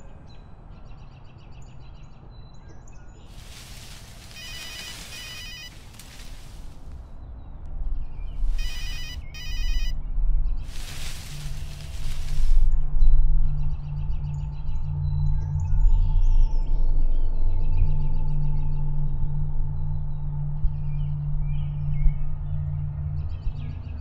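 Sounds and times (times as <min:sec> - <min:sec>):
rushing hissy noise: 0:03.4 - 0:07.0, 0:10.7 - 0:12.7
trilling electronic ring: 0:08.6 - 0:09.9.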